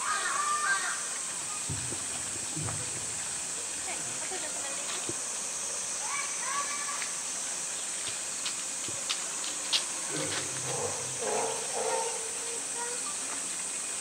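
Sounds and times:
cicada chorus hissing: 0:00.0 - 0:14.0
water clicks and drips: 0:01.1 - 0:05.5, 0:06.9 - 0:10.8.

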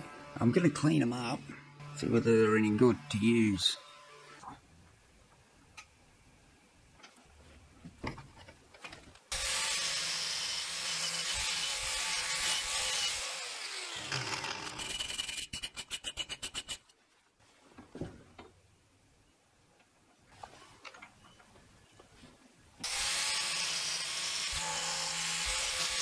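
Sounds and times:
power tool wire brush scouring: 0:09.3 - 0:16.8, 0:22.8 - 0:26.0
hand wire brush scrubbing metal: 0:14.7 - 0:16.9.

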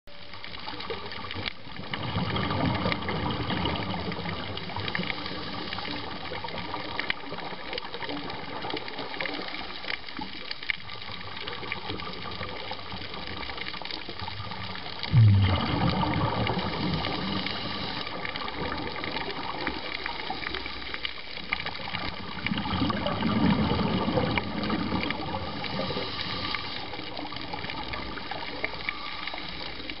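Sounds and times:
fine crackle of clicks: 0:00.1 - 0:15.1, 0:17.5 - 0:30.0
underwater bubbling from exhaled breath: 0:00.1 - 0:30.0
low underwater thump: 0:15.1 - 0:16.5.

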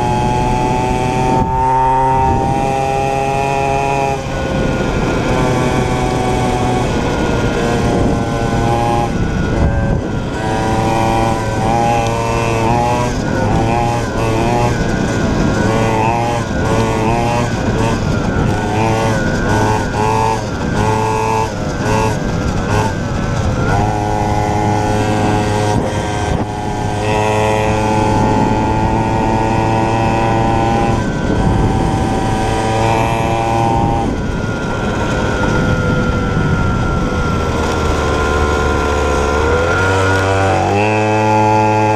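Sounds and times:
two-stroke motorbike engine revving: 0:00.0 - 0:41.9.

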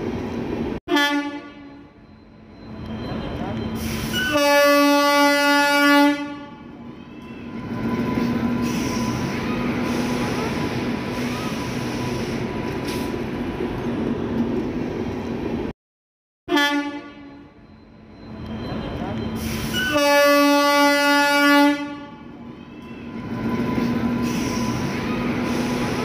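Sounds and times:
train horn blast: 0:00.9 - 0:01.9, 0:04.2 - 0:06.7, 0:16.5 - 0:17.5, 0:19.7 - 0:22.3.

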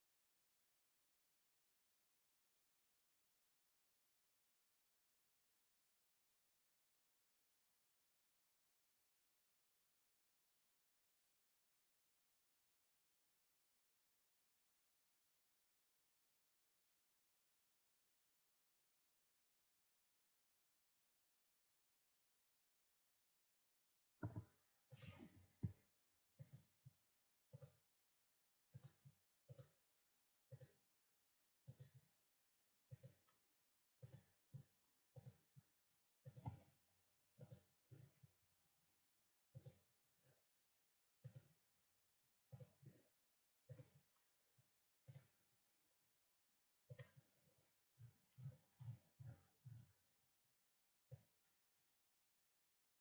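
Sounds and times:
computer mouse clicks: 0:24.2 - 0:25.4, 0:27.5 - 0:27.8, 0:28.7 - 0:29.8, 0:30.5 - 0:30.8, 0:31.7 - 0:32.0, 0:32.9 - 0:33.3, 0:36.2 - 0:36.6, 0:39.5 - 0:39.8, 0:41.2 - 0:41.5, 0:43.7 - 0:44.0, 0:45.1 - 0:45.4, 0:46.9 - 0:47.2.

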